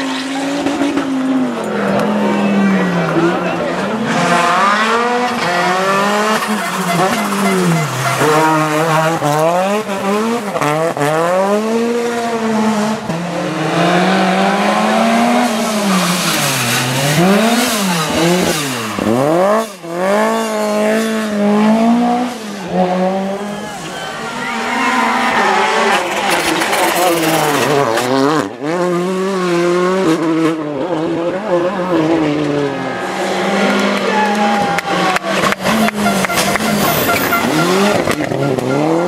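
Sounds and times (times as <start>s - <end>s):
rally car engines revving: 0.0s - 39.0s.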